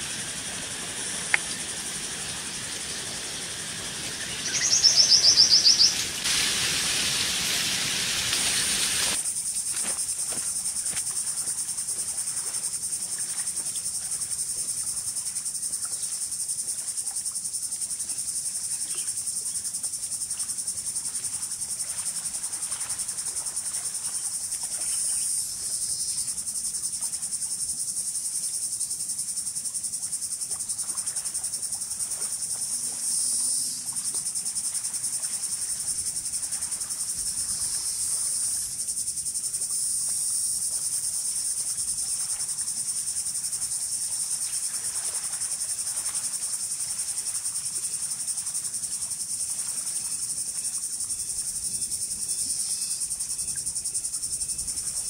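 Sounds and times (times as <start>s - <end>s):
loud hiss: 0.0s - 9.4s
insects chirring: 0.0s - 55.0s.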